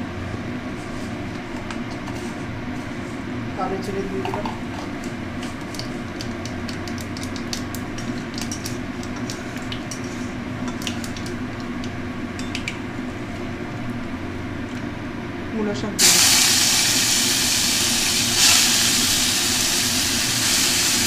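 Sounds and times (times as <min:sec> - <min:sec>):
seeds frying in hot oil: 0:16.0 - 0:21.0.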